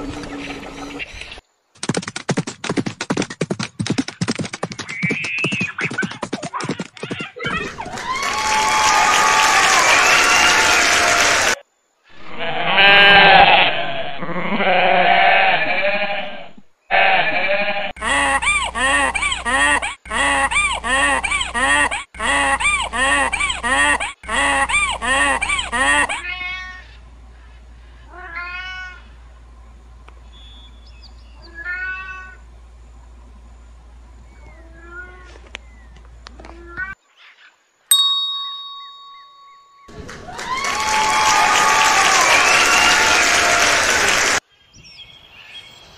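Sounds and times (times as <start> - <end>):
quick repeated arching calls: 3.0 - 7.5.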